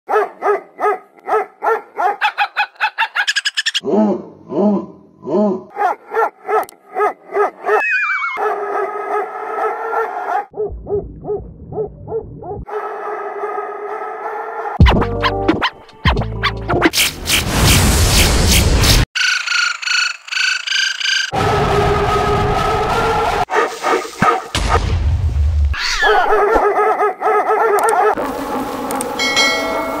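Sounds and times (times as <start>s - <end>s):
muffled dog barks: 0.1s - 2.8s, 3.9s - 14.8s, 23.5s - 24.8s, 26.1s - 28.2s
echoing bark wash: 22.9s - 25.2s
short ringing chime: 29.2s - 30.0s.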